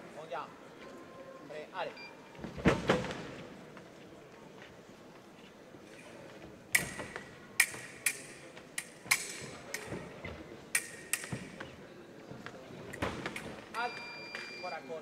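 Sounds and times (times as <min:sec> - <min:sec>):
fencing blades clashing: 0:06.8 - 0:11.6.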